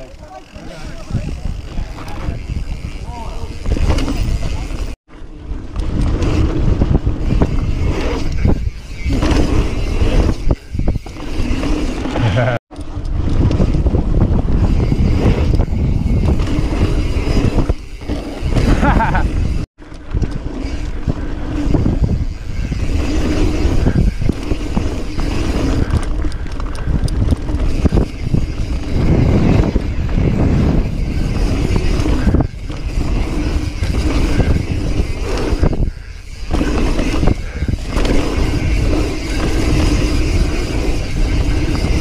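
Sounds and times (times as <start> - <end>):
bike knocking and rattling: 0.0 - 42.0
wind buffeting microphone: 0.0 - 42.0
tyres rumbling on dirt: 20.3 - 42.0.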